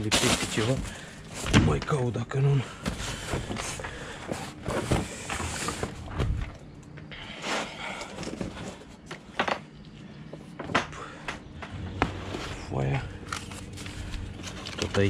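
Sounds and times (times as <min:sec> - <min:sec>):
boxes and papers handled: 0:00.0 - 0:01.8, 0:02.8 - 0:06.6, 0:07.2 - 0:09.2, 0:11.7 - 0:15.0.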